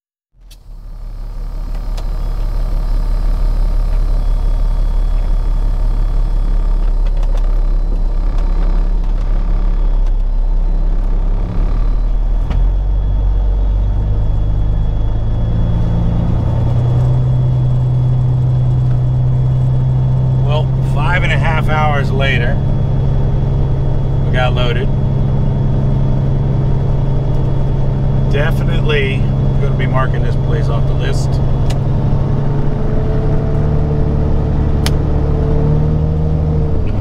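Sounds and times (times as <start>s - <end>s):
diesel truck engine idling: 0.4s - 37.0s.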